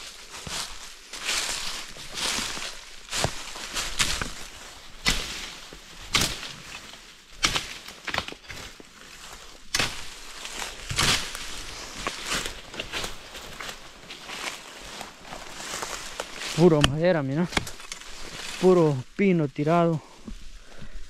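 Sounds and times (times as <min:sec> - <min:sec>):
footsteps crunching on forest debris: 0:00.0 - 0:21.0.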